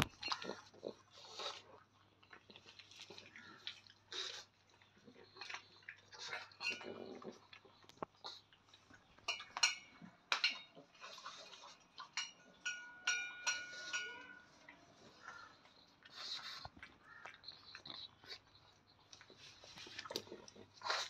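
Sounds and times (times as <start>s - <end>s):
teeth clinking on metal bowl: 0.0s - 0.9s, 6.2s - 7.5s, 9.1s - 15.6s
puppy eating from metal bowl: 0.0s - 21.0s.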